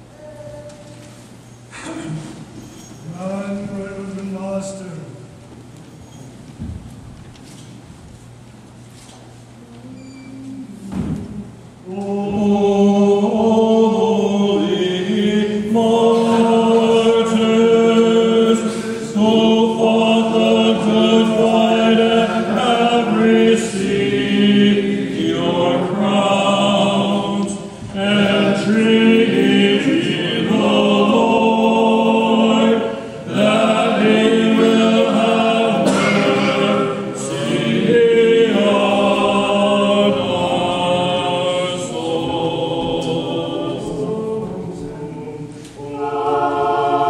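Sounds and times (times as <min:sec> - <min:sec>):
choir singing a cappella: 0:11.8 - 0:47.0.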